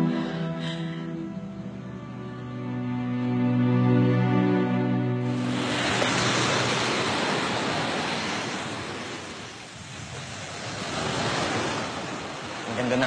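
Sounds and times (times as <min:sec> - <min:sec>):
waves breaking on a beach: 0:05.2 - 0:13.0.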